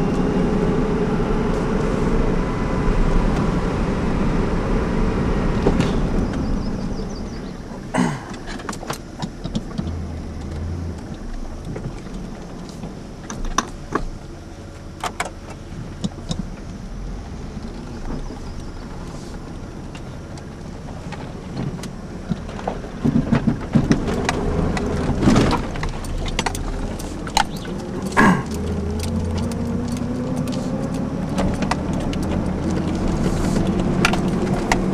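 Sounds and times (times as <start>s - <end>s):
truck engine low rumble: 0.0s - 34.9s
cab knocks and rattles: 5.6s - 16.7s, 17.6s - 34.9s.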